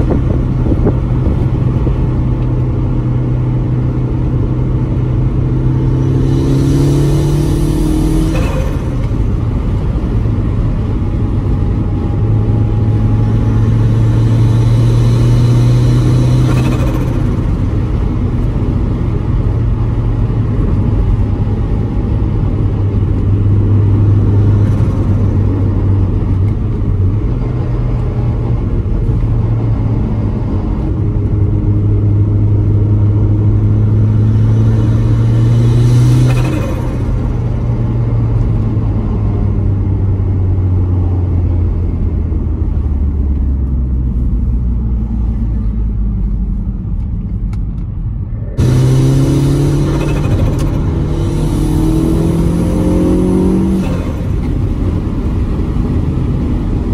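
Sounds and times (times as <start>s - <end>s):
turbocharged engine revving: 0.0s - 18.4s, 22.7s - 40.1s, 48.4s - 56.9s.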